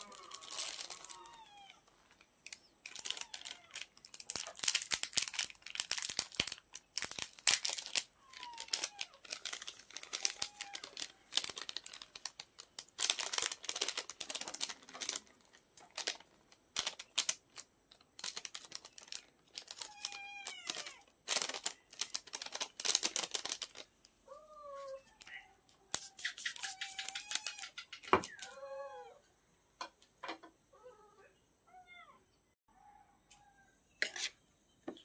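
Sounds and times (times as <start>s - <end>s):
sachet tearing open: 0.0s - 1.4s, 2.1s - 23.9s, 25.9s - 27.7s
plastic sachet crinkling: 0.0s - 24.0s.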